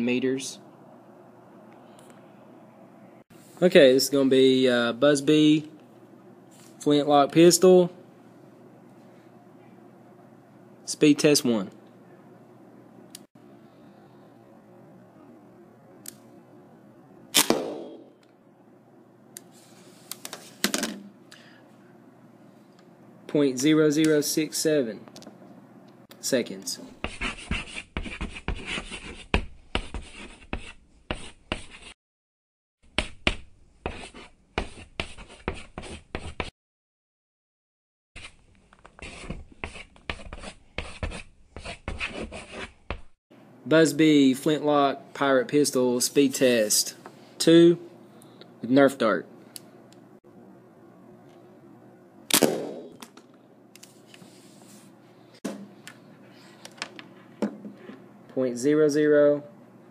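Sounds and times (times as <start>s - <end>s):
dart pistol firing snap: 17.4s - 18.1s, 52.3s - 53.2s
chalk writing on chalkboard: 27.0s - 32.0s, 33.0s - 36.5s, 39.0s - 43.1s.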